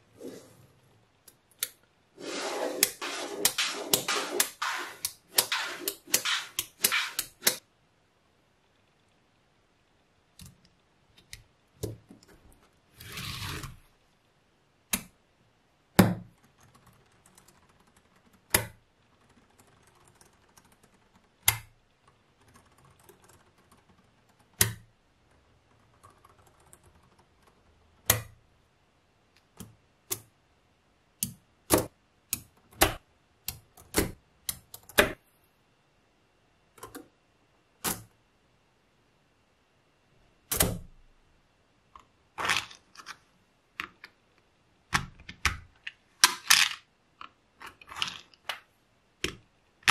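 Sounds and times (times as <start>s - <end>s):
magnetic balls clicking together: 3.5s - 7.6s, 16.2s - 28.4s.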